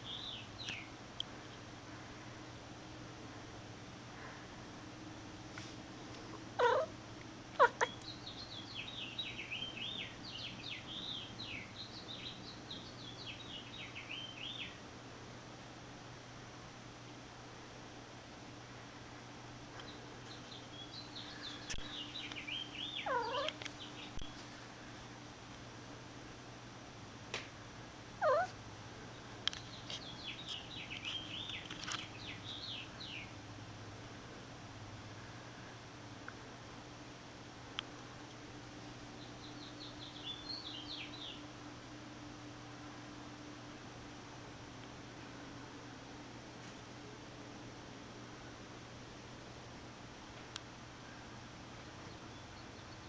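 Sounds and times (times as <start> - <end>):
cat bark-like calls: 6.5 - 8.0, 23.0 - 23.6, 28.1 - 28.6.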